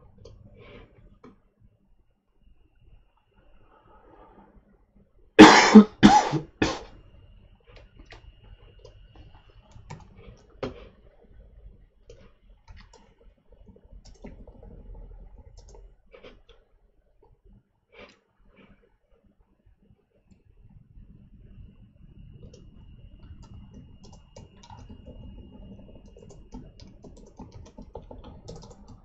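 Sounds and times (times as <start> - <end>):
man coughing: 5.4 - 6.8.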